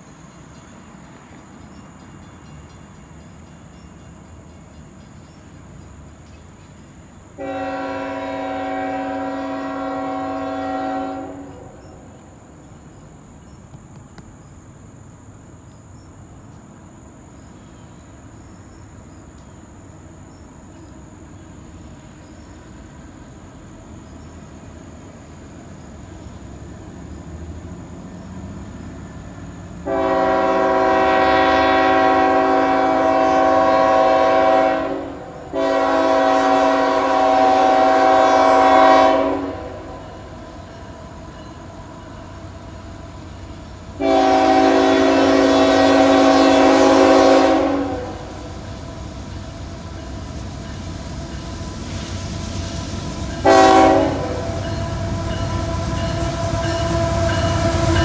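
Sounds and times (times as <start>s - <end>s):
locomotive engine rumble: 0.0s - 58.0s
locomotive air horn: 7.4s - 11.8s, 29.8s - 40.1s, 44.0s - 48.7s, 53.3s - 58.0s.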